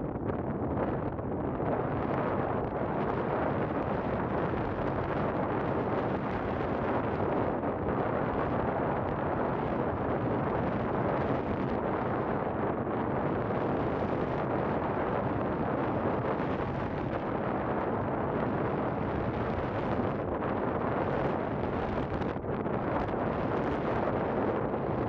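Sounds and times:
wind noise on microphone: 0:00.0 - 0:25.0.

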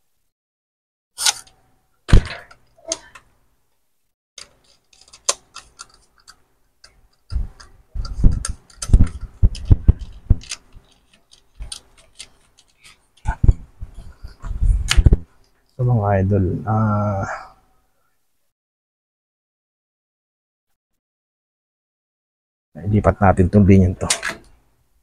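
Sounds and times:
plastic fan parts clicking: 0:04.4 - 0:13.7.

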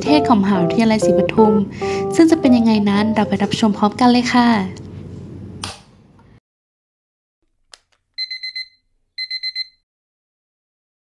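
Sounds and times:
sharp click: 0:05.6 - 0:05.9
alarm clock high beeps: 0:08.2 - 0:09.8.

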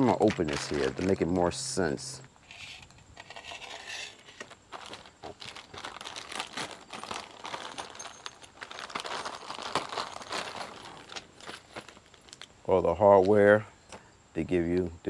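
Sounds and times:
plastic packaging crinkling: 0:00.0 - 0:01.7, 0:03.2 - 0:12.5.

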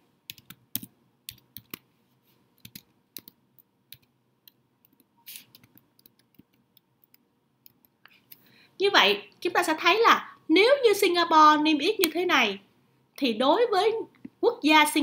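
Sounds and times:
computer keyboard keystrokes: 0:00.3 - 0:01.8, 0:02.6 - 0:07.9.

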